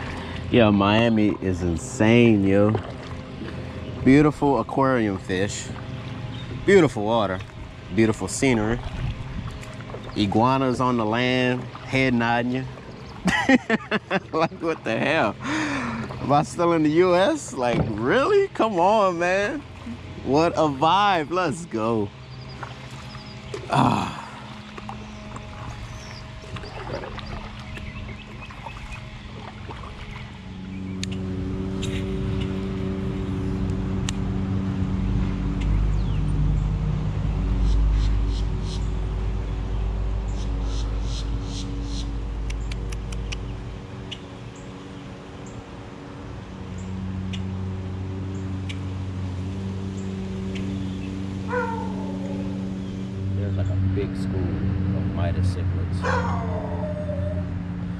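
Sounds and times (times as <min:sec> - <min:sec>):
engine running: 0:00.0 - 0:57.9
low mechanical hum: 0:00.0 - 0:57.9
sharp clicks: 0:42.4 - 0:44.2.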